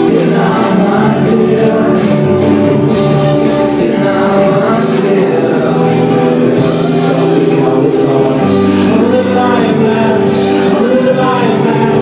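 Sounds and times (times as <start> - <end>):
drums: 0.0 - 12.0
guitar: 0.0 - 12.0
live folk-rock band: 0.0 - 12.0.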